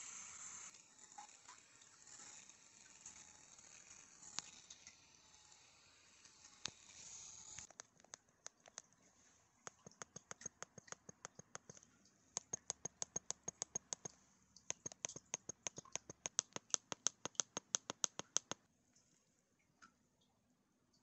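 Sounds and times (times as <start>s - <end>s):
massager buttons ticking: 9.7s - 11.8s, 12.4s - 18.6s.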